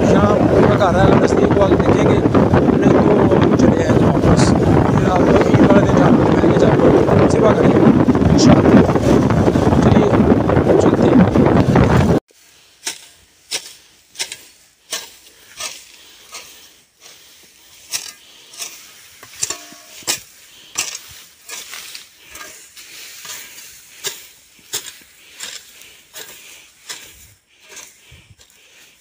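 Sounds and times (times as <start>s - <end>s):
hoe chopping into soil: 12.8s - 16.5s, 17.8s - 28.5s.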